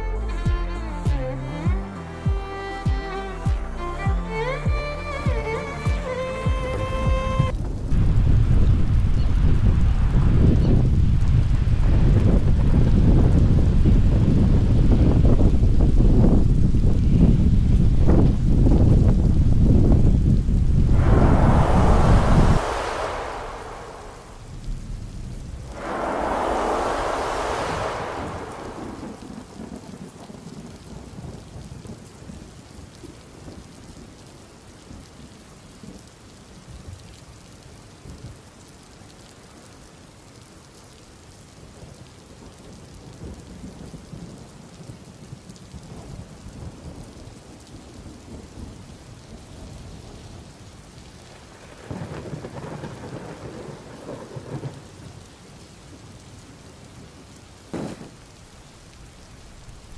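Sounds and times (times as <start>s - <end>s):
wind buffeting microphone: 4.3s - 31.7s.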